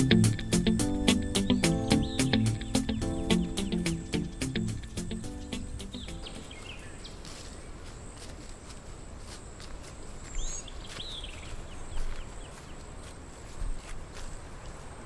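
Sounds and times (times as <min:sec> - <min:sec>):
footsteps crunching dry leaves: 0:06.1 - 0:15.0.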